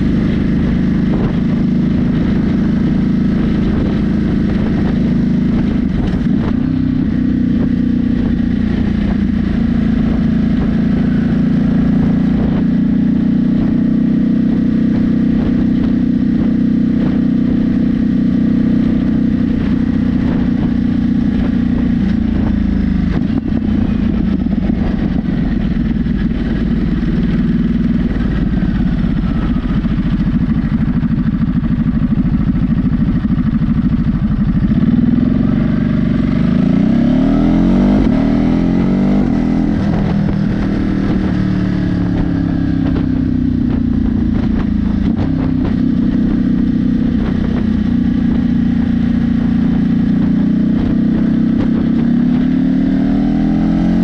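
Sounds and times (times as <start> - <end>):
motorcycle engine while riding: 0.0 - 54.0.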